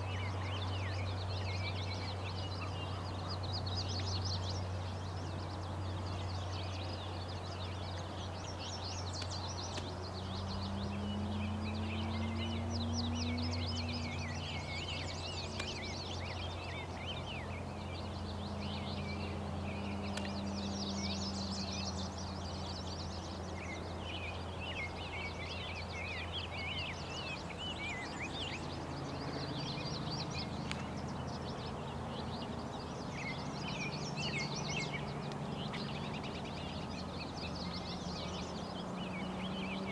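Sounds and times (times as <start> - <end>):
small birds singing and chirping: 0.0 - 39.9.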